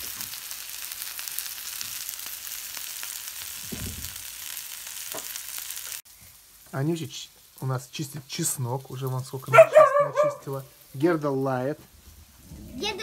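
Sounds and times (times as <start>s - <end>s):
small crackles and pops: 0.0s - 9.7s
vegetables sizzling in hot oil: 0.0s - 13.0s.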